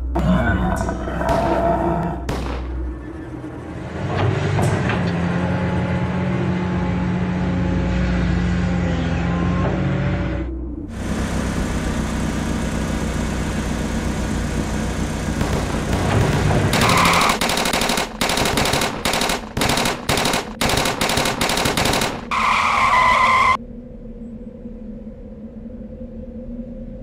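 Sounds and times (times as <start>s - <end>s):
cartoon motor running: 10.9s - 22.6s
loud noisy bursts: 10.9s - 23.5s.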